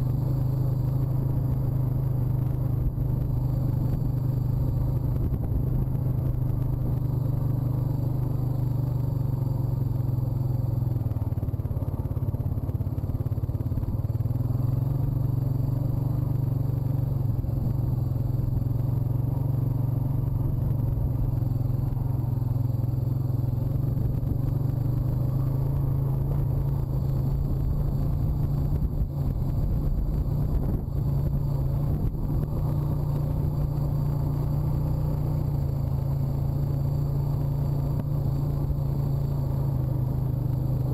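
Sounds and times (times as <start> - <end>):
atv engine running: 0.0 - 40.9.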